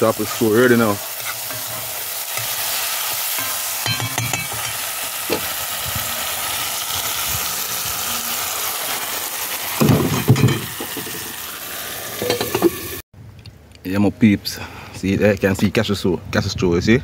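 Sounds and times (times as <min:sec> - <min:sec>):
stew sizzling in a pot: 0:00.0 - 0:13.0
metal spoon scraping pot: 0:01.2 - 0:02.5
spoon knocking on pot: 0:03.4 - 0:05.4.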